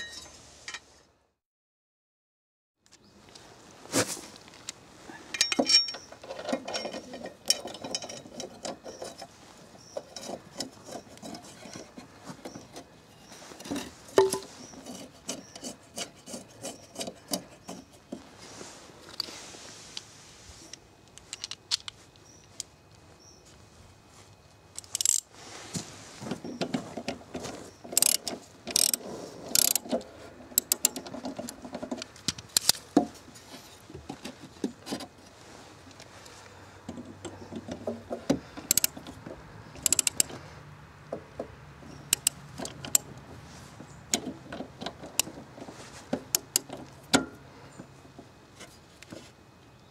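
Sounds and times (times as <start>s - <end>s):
metal and wood clinks and knocks: 5.3s - 18.3s, 26.2s - 35.4s.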